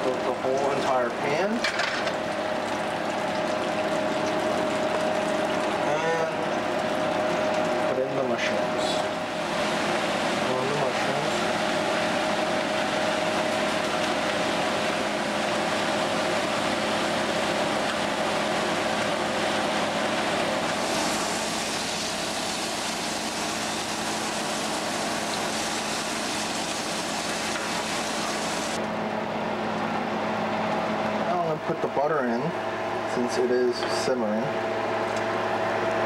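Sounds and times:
mushrooms sizzling in frying pan: 20.6s - 28.8s.

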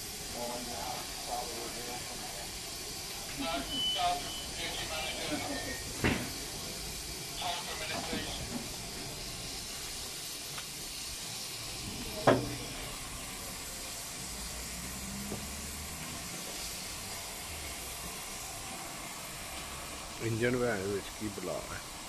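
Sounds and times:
steam hissing from locomotive: 0.0s - 22.0s.

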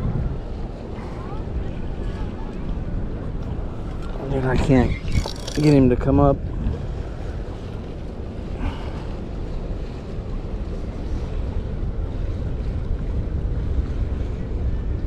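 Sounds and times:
choppy sea: 0.0s - 15.0s
wind buffeting microphone: 0.0s - 15.0s.

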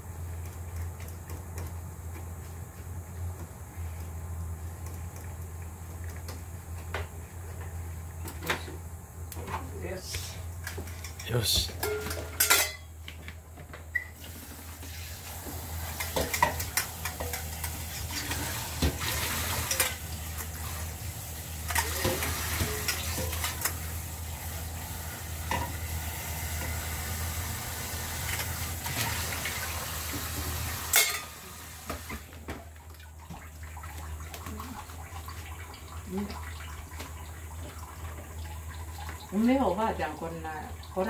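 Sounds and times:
constant low hum: 0.0s - 14.0s.

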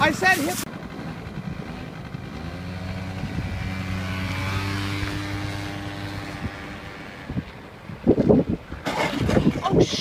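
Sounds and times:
motor scooter engine pulling away: 0.1s - 7.8s.

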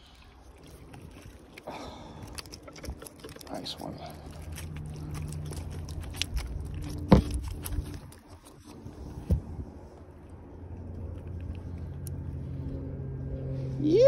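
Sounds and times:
fish flopping on gravel: 0.5s - 8.8s.

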